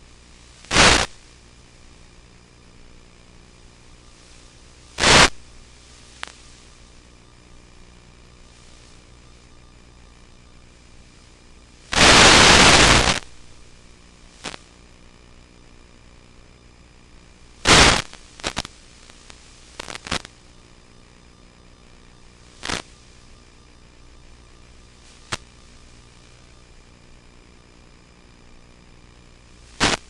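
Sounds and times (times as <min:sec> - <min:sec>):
brief static crackles: 0:00.0 - 0:01.4, 0:04.1 - 0:07.2, 0:11.1 - 0:15.6, 0:17.6 - 0:20.4, 0:21.5 - 0:23.4, 0:24.8 - 0:26.4, 0:29.3 - 0:30.0
faint steady hiss: 0:00.0 - 0:30.0
radio static bursts: 0:00.6 - 0:01.2, 0:04.2 - 0:07.4, 0:11.1 - 0:14.7, 0:17.6 - 0:20.4, 0:22.1 - 0:23.2, 0:25.0 - 0:26.4, 0:29.6 - 0:30.0.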